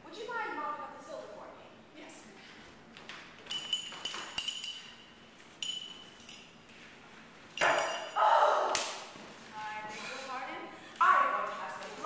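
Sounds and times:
cup clinking: 0:05.6 - 0:06.5.

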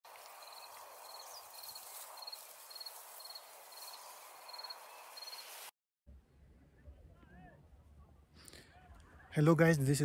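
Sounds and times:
outdoor field ambience hiss: 0:00.1 - 0:06.6
insect chirping: 0:00.2 - 0:05.7.

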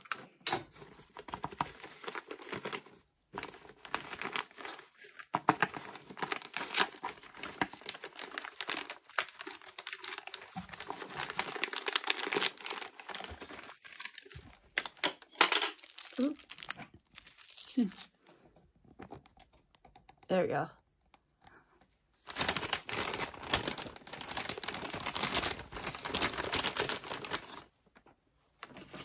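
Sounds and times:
plastic packaging crinkling: 0:00.7 - 0:18.2, 0:22.2 - 0:27.8
scissors cutting plastic: 0:01.3 - 0:16.9.

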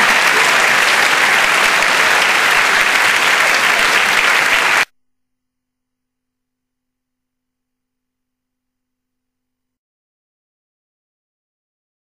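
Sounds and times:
audience applauding: 0:00.0 - 0:04.9.

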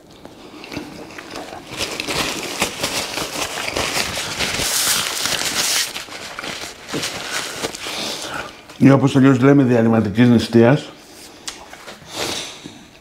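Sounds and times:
paper napkin rustling: 0:01.6 - 0:08.7.

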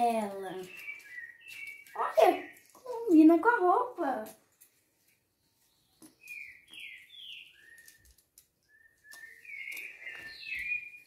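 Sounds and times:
high whistled calls: 0:00.5 - 0:02.7, 0:06.1 - 0:11.0.

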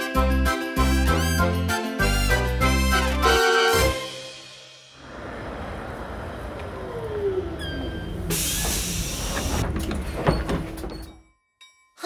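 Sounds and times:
cartoon train rumbling: 0:02.6 - 0:11.1.

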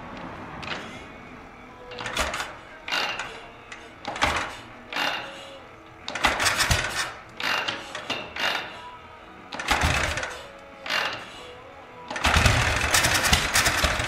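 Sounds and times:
motorcycle kick starter turning engine: 0:00.6 - 0:01.0, 0:01.9 - 0:05.3, 0:06.1 - 0:08.8, 0:09.5 - 0:11.4, 0:12.1 - 0:14.0.

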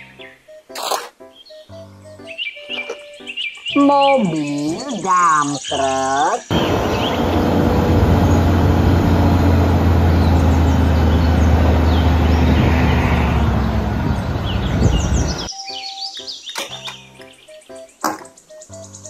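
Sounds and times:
birds chirping: 0:01.2 - 0:19.0
diesel lorry engine running: 0:06.5 - 0:15.5.

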